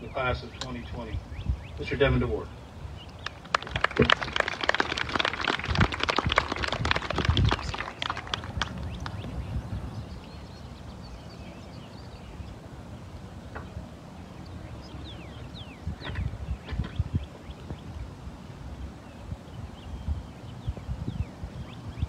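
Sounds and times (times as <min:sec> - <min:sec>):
bird chirps: 0:00.0 - 0:03.5, 0:08.8 - 0:18.0
wind rumble on microphone: 0:00.0 - 0:22.0.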